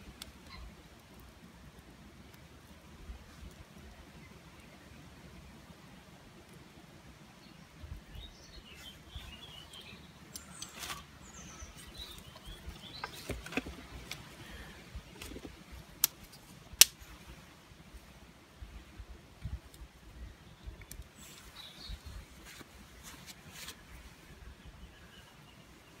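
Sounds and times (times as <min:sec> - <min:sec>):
small birds chirping: 0:07.4 - 0:15.9, 0:19.4 - 0:26.0
kindling clicks and snaps: 0:15.2 - 0:17.0, 0:20.8 - 0:21.1
sharp crack: 0:15.2 - 0:17.3.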